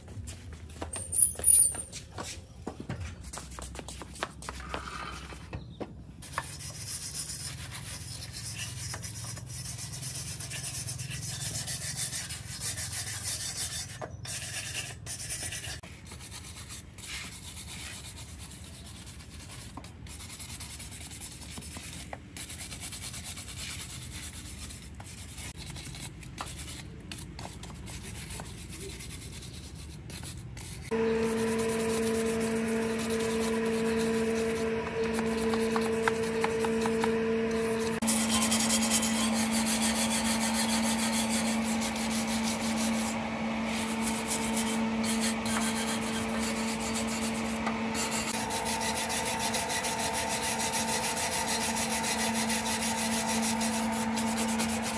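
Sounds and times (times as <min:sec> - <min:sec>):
hand sanding scraping hiss: 0:06.2 - 0:54.9
small electric motor humming: 0:28.7 - 0:54.9.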